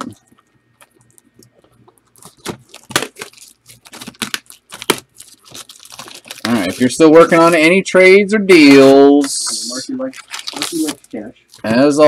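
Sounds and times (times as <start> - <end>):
packaging crinkling and tearing: 0.0 - 7.1, 10.0 - 11.9.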